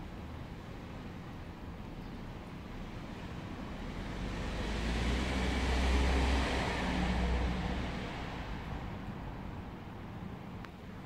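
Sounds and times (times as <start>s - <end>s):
passing motor vehicle rumble: 2.8s - 10.2s.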